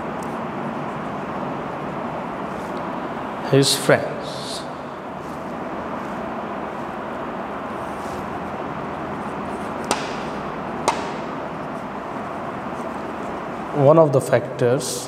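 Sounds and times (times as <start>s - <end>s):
steady background noise: 0.0s - 15.0s
paper and marker taps on desk: 9.8s - 11.3s.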